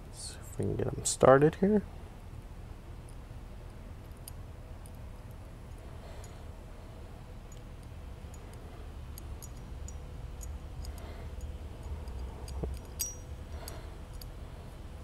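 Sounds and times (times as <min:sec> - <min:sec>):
low steady hum: 0:00.0 - 0:15.0
small metal clicks and ticks: 0:04.0 - 0:06.4, 0:07.5 - 0:14.4.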